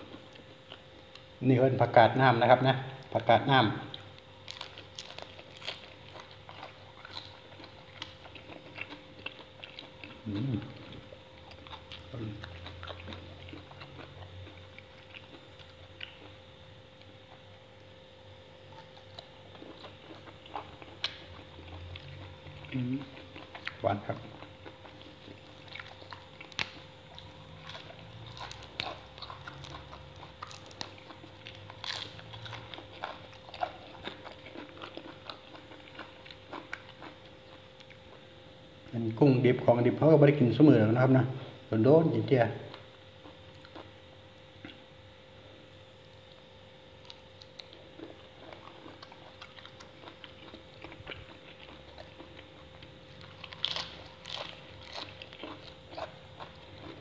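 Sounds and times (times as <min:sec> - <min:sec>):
person chewing crunchy food: 0:00.0 - 0:01.4, 0:03.9 - 0:38.4, 0:42.6 - 0:44.9, 0:45.6 - 0:57.0
faint steady hum: 0:00.0 - 0:57.0
biting into leafy greens: 0:18.7 - 0:38.0, 0:47.0 - 0:57.0.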